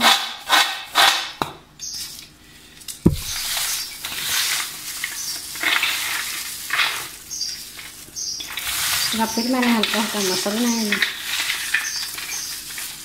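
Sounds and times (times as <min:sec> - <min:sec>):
thump: 0:03.1 - 0:03.9
garlic skins rustling: 0:03.1 - 0:13.0.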